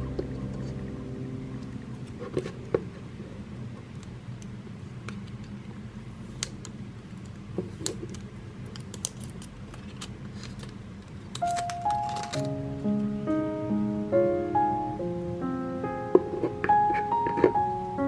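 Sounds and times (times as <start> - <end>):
steady low hum: 0.0 - 18.0
plastic film crinkling: 8.7 - 12.5.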